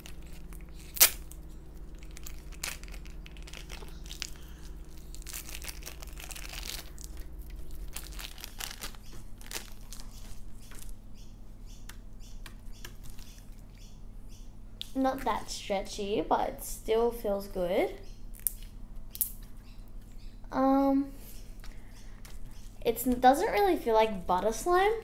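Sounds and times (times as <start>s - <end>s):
plastic bag crinkling and tearing: 0.0s - 11.0s
slime crackling: 0.0s - 11.0s.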